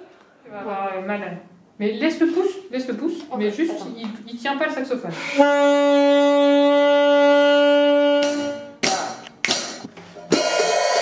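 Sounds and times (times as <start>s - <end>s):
saxophone long note: 5.1s - 8.9s.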